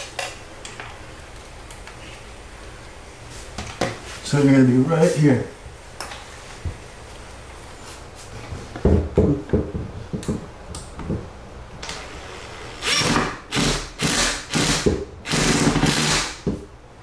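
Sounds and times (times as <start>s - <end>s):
cordless drill driving screw: 12.7s - 16.3s.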